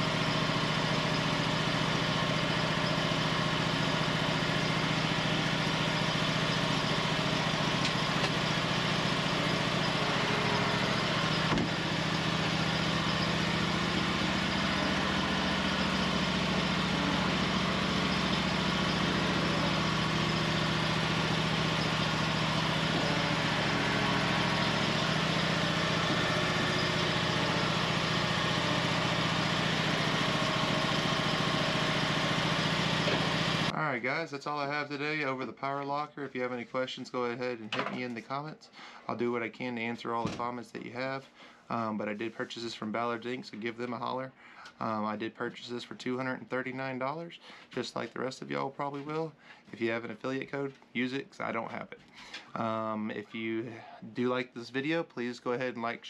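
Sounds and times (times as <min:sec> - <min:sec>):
mower engine running: 0:00.0 - 0:33.8.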